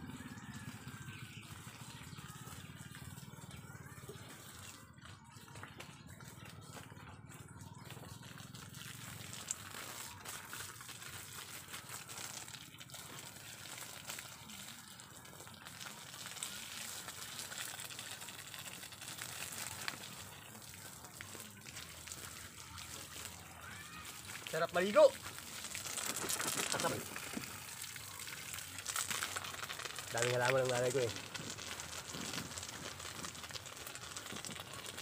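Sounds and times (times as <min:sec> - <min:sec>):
hose water spraying and splashing: 0:08.4 - 0:35.0.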